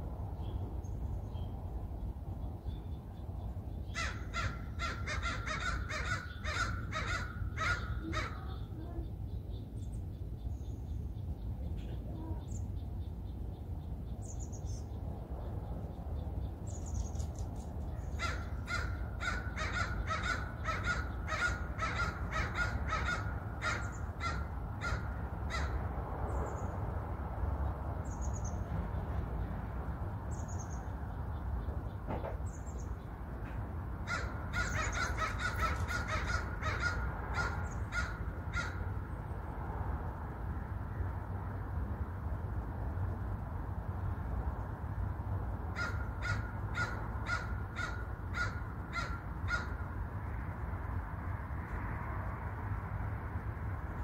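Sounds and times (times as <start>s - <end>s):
crow cawing: 3.9s - 8.6s, 18.1s - 25.8s, 34.0s - 38.9s, 45.7s - 49.9s.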